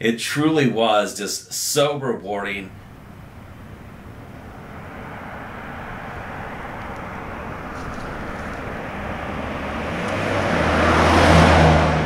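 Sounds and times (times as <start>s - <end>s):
car approaching on road: 2.7s - 12.0s.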